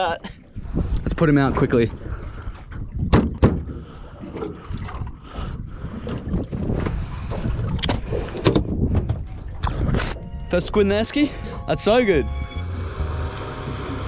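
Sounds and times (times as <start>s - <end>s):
wind rumbling on microphone: 0.0s - 10.8s.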